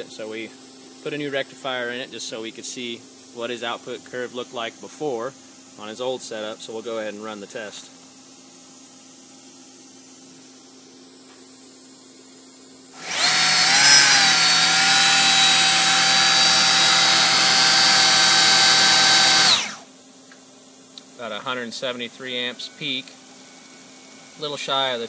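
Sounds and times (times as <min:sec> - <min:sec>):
motor and alternator whining: 0:13.0 - 0:19.9.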